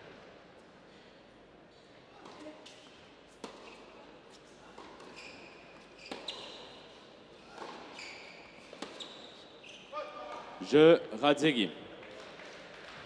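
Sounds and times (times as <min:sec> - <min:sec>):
sneakers squeaking on court: 0:05.0 - 0:06.9, 0:07.6 - 0:10.0.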